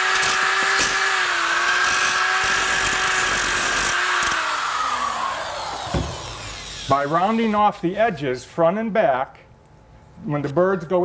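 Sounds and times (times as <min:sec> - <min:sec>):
electric power tool running: 0:00.0 - 0:07.5.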